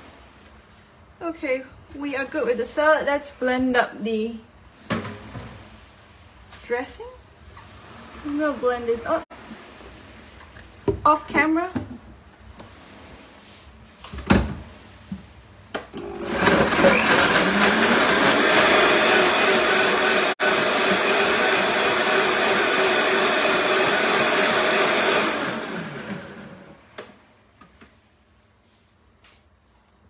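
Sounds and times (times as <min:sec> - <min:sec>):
blender running at high speed: 0:16.0 - 0:26.8.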